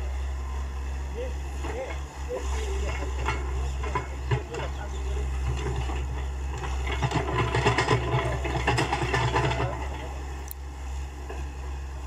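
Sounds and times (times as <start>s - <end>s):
excavator diesel engine running: 0.0s - 12.0s
excavator bucket clanking and rattling: 1.5s - 10.3s, 11.2s - 11.6s.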